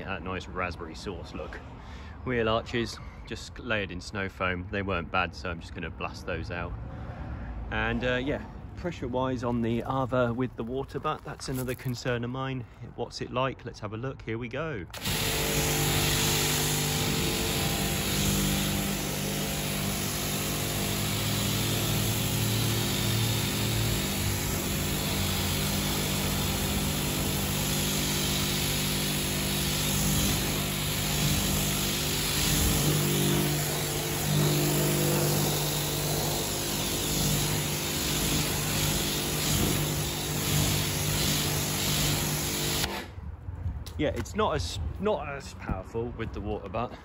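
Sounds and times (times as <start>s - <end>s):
pressure washer jet hissing: 15.0s - 43.1s.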